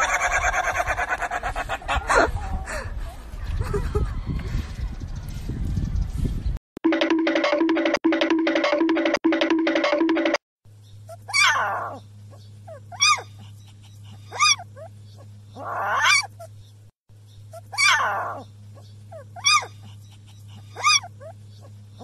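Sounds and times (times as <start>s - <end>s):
low steady hum: 10.7s - 22.0s
puppy whining and yelping: 11.1s - 12.0s, 12.7s - 16.6s, 17.5s - 18.4s, 19.1s - 21.7s.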